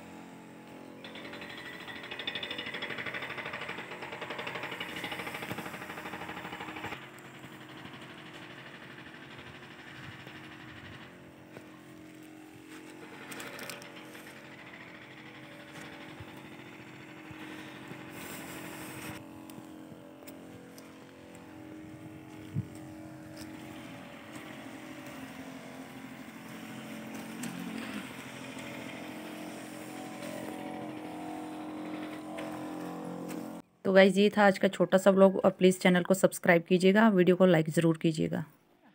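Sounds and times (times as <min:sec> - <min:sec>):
sprayer pump motor humming: 0:00.0 - 0:33.6
spray hissing from lance: 0:17.4 - 0:19.2.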